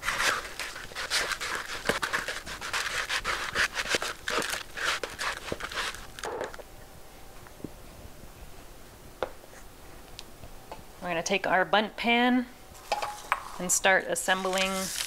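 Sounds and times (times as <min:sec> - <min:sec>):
spatula stirring sticky mix: 0:00.0 - 0:06.2.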